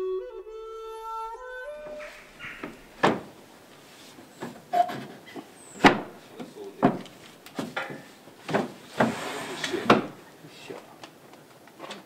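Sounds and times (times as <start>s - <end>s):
wooden boards knocking: 2.4s - 3.4s, 4.4s - 9.2s, 9.8s - 10.2s.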